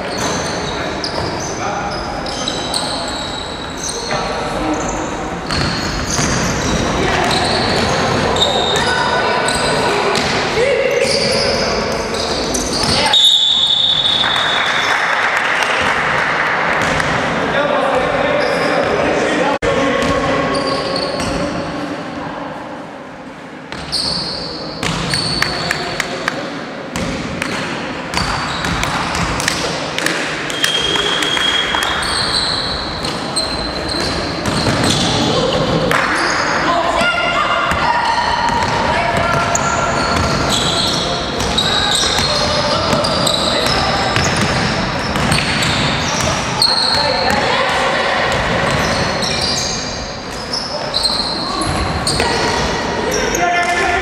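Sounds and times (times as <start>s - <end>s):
sneakers squeaking: 0.0s - 15.0s, 18.0s - 19.2s, 20.0s - 21.8s, 23.7s - 26.2s, 26.9s - 54.0s
players' voices: 0.0s - 54.0s
basketball bouncing on gym floor: 5.4s - 9.0s, 38.5s - 40.7s, 41.4s - 47.5s.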